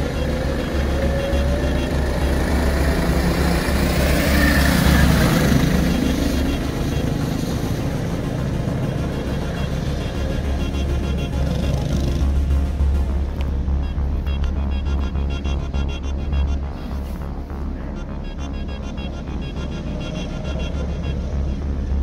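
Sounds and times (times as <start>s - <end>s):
go-kart engines passing: 0.0s - 12.4s
steady low rumble: 0.0s - 22.0s.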